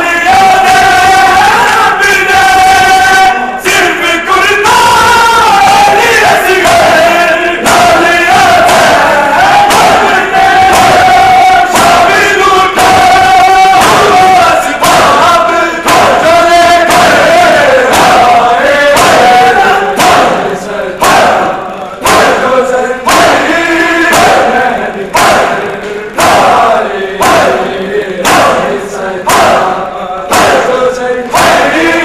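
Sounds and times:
men chanting in unison: 0.0 - 32.0
hands striking chests: 7.6 - 22.5, 23.1 - 30.7, 31.3 - 32.0.

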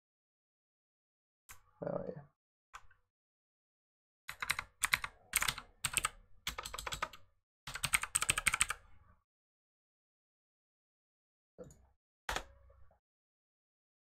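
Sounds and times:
computer keyboard typing: 4.3 - 8.8.

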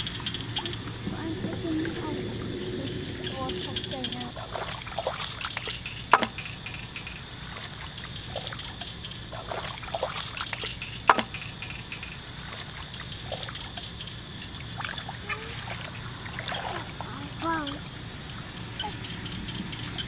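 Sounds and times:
muddy water sloshing: 0.0 - 20.0
sharp smacks on water: 4.5 - 13.9.

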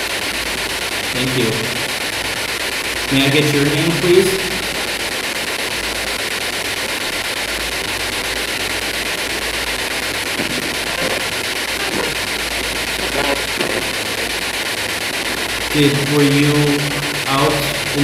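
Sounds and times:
radio static hiss: 0.0 - 18.0.

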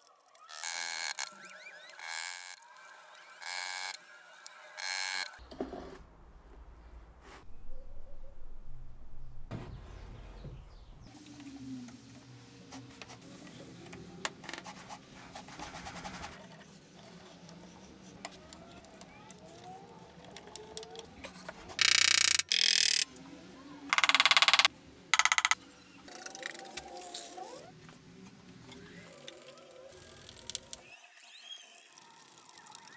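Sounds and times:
handheld power tool buzzing: 0.5 - 2.6, 21.8 - 23.1.

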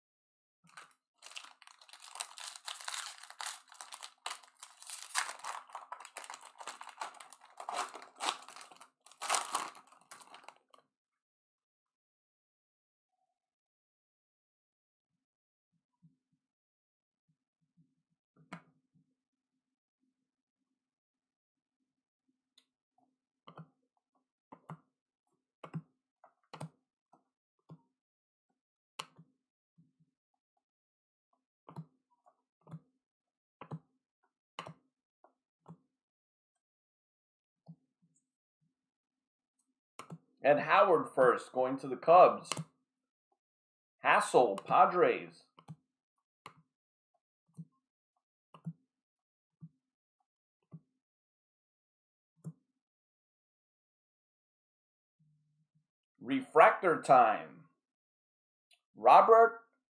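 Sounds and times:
foil wrapper crinkling: 1.2 - 10.5
trading cards tapping: 1.2 - 10.5.

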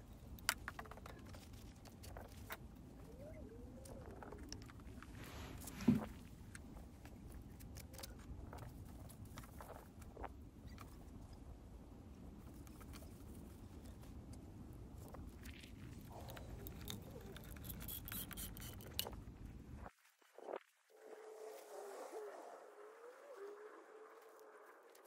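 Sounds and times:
faint low rumble: 0.0 - 17.7, 19.0 - 25.0
hand work clicks and scrapes: 16.1 - 19.2.

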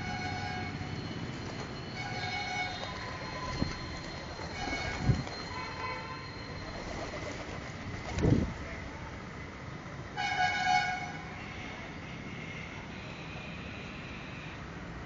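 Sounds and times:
horns tooting: 0.0 - 6.5, 10.1 - 14.8
pigeon wings flapping: 6.8 - 8.5.

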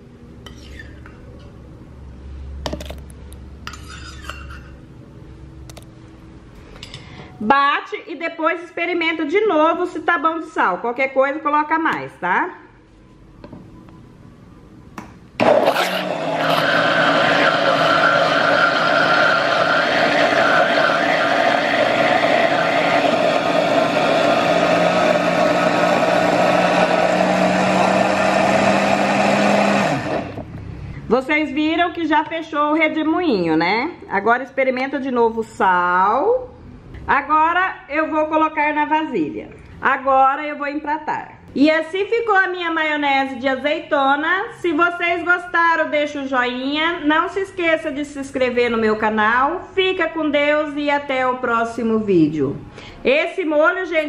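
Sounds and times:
kitchen blender running: 15.4 - 30.5.

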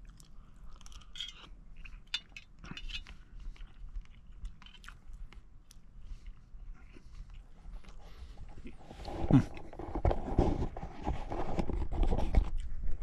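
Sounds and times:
chewing: 0.0 - 9.8.

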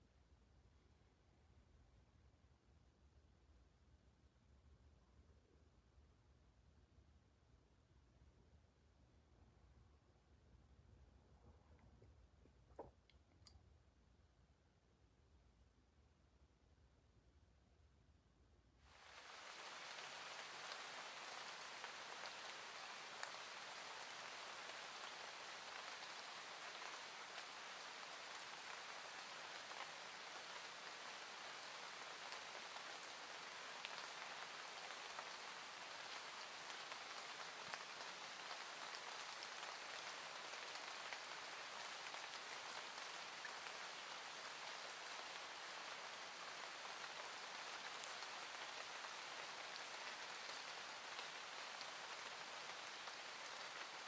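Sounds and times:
soft steady rain: 0.0 - 18.0, 18.6 - 54.0
faint raindrop ticks: 18.9 - 54.0.

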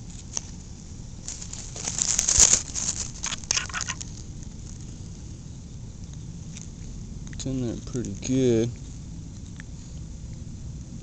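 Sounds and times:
hands rustling and crinkling: 0.0 - 5.2.

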